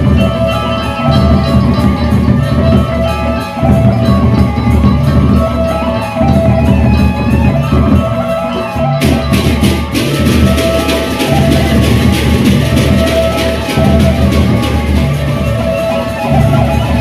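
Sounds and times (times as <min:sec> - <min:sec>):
barrel drums beaten: 0:09.0 - 0:15.7.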